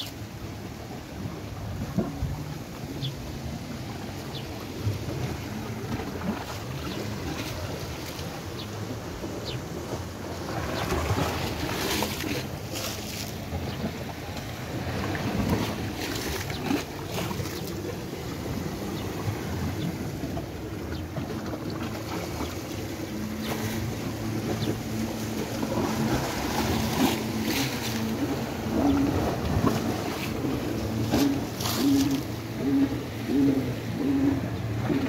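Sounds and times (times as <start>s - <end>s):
sea water washing on rocks: 9.8s - 35.0s.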